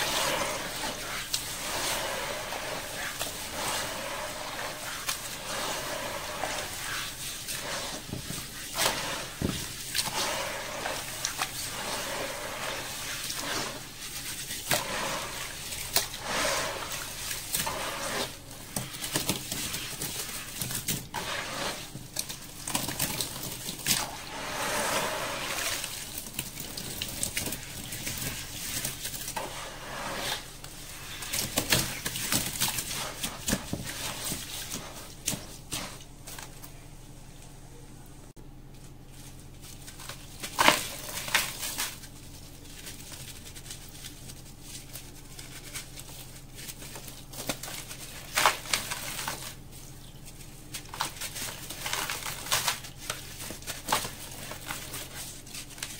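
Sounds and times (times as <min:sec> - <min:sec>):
water sloshing and dribbling: 0:00.0 - 0:36.2
hands squishing wet sand-cement: 0:00.0 - 0:36.3.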